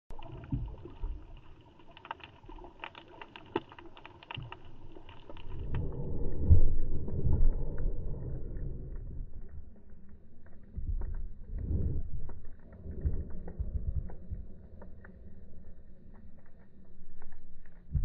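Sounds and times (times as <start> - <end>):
underwater clicks and crackles: 0.1 - 18.0
low rushing rumble of wave: 4.9 - 9.9.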